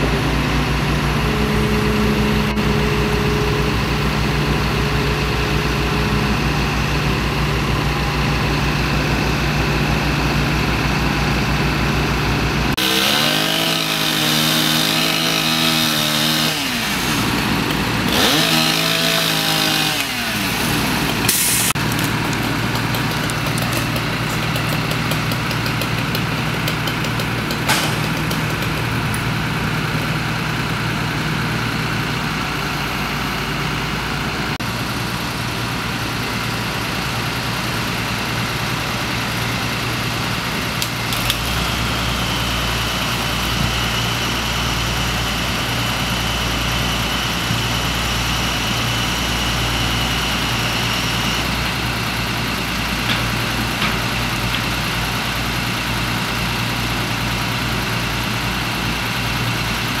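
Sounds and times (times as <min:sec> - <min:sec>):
engine idling with low hum: 0:00.0 - 0:12.8.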